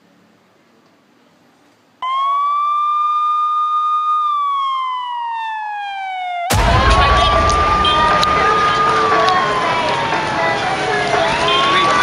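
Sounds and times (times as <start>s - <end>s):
police siren wail: 2.0s - 12.0s.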